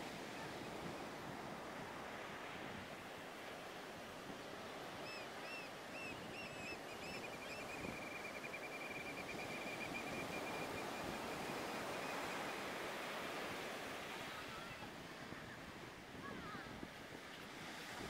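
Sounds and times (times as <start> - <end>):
waves breaking on beach: 0.0 - 6.2, 9.1 - 18.0.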